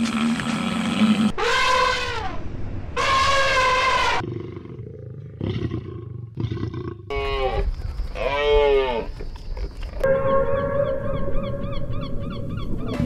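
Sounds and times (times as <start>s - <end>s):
elephant trumpeting: 1.3s - 2.4s, 3.0s - 4.2s.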